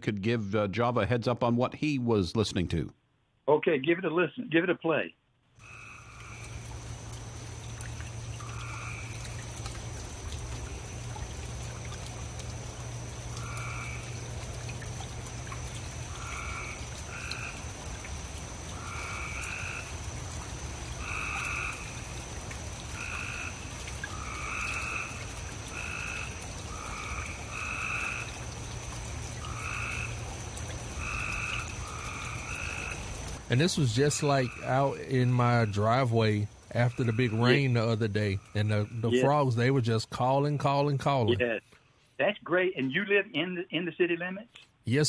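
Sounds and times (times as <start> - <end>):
rain dripping off roof: 5.6 - 41.4
tree frogs trilling: 5.6 - 41.4.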